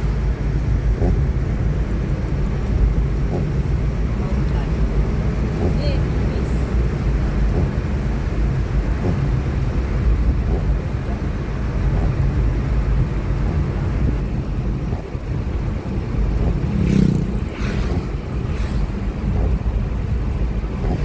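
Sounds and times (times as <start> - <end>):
car cabin road and engine noise: 0.0 - 21.0
short swish: 16.5 - 19.5.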